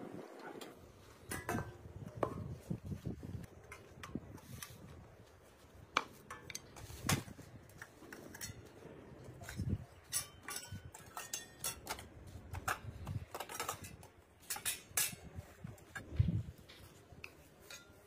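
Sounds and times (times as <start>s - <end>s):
steel plates clattering: 9.4s - 15.4s.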